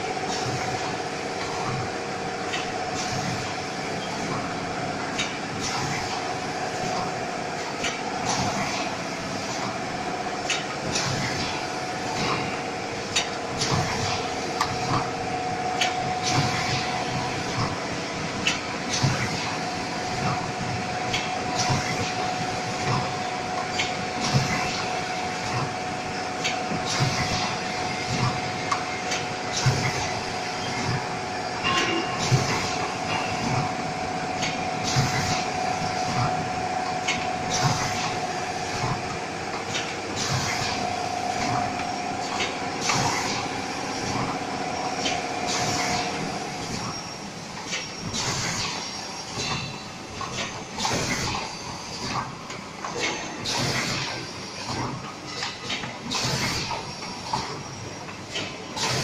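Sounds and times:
machine whine: 0.0s - 59.0s
machine clicks and clacks: 0.1s - 59.0s.

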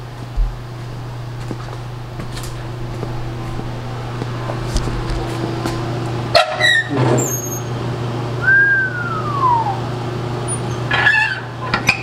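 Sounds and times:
low hum: 0.0s - 10.8s
hinge squeak: 6.3s - 7.8s, 10.5s - 12.0s.

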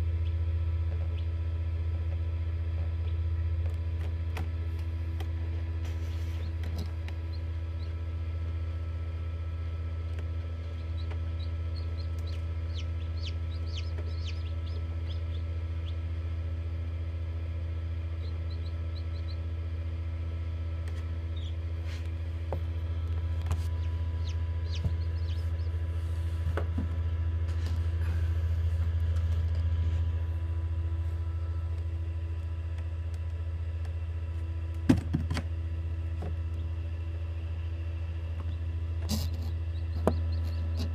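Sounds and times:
incubator fan hum: 0.0s - 40.9s
chicks peeping: 5.9s - 8.1s, 10.1s - 16.3s, 18.1s - 19.5s, 20.9s - 22.0s, 23.4s - 26.5s, 38.4s - 40.9s.

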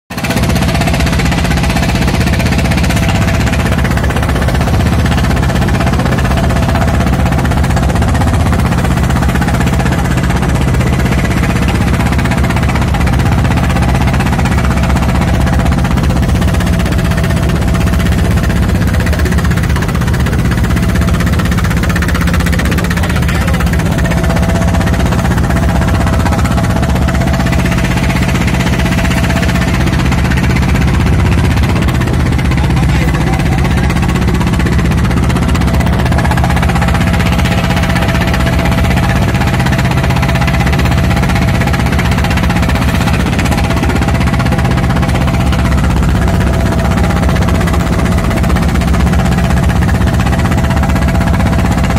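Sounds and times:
boat engine running: 0.1s - 51.9s.

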